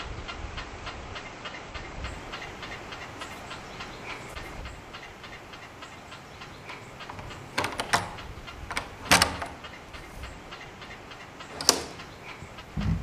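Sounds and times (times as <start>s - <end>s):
door lock clicking: 7.0s - 9.8s, 11.4s - 12.2s.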